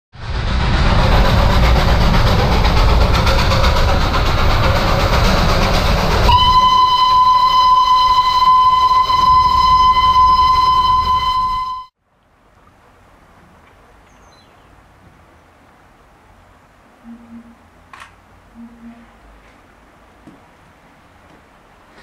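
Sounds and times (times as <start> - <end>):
low rumble: 0.2 - 7.6
steam locomotive hissing: 0.2 - 11.9
steam whistle high note: 6.2 - 11.9.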